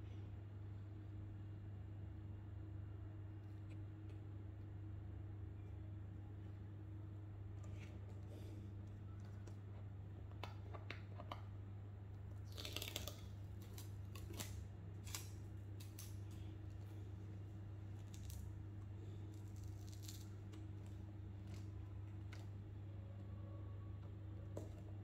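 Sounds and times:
packaging tearing: 12.4s - 16.2s
low hum: 13.2s - 25.0s.

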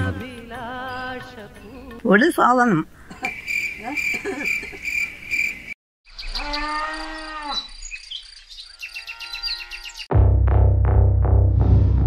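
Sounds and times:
insects and birds chirping: 0.8s - 10.1s
crickets chirping: 3.0s - 6.4s
cow mooing: 6.4s - 7.7s, 8.8s - 10.1s.

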